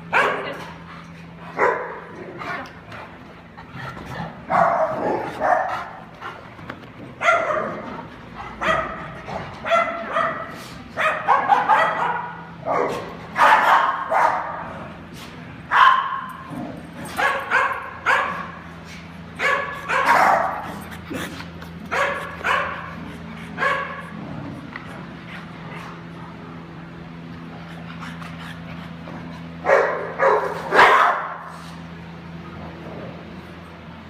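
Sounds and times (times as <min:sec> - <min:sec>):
dogs barking: 0:00.0 - 0:00.9, 0:01.5 - 0:02.6, 0:04.2 - 0:06.5, 0:07.1 - 0:14.9, 0:15.7 - 0:24.2, 0:28.9 - 0:31.5.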